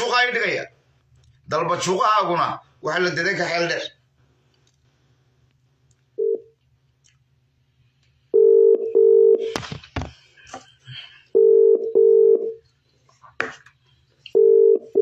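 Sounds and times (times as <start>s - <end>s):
telephone ringback double beep: 8.4s - 9.4s, 11.4s - 12.5s.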